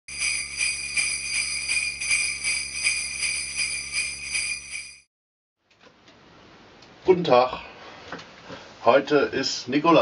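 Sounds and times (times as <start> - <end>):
sleigh bells jingling: 0.1 - 5.1.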